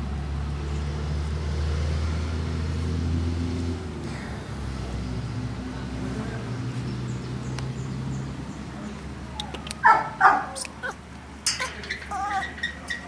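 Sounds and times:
low engine hum: 0.0s - 13.0s
dog yipping: 9.4s - 13.0s.

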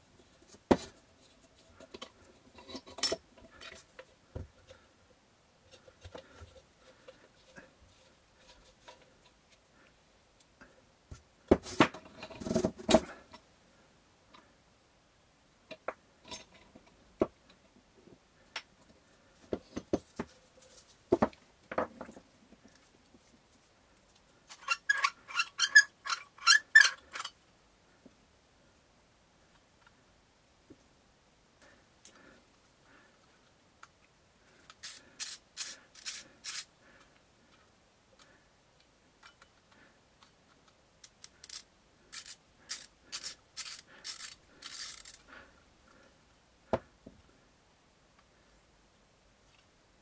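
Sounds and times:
rustling: 18.0s - 28.0s.

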